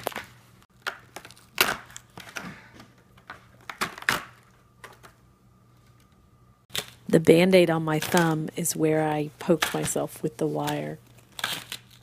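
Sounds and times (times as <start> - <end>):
cardboard tearing and crackling: 11.2 - 12.0.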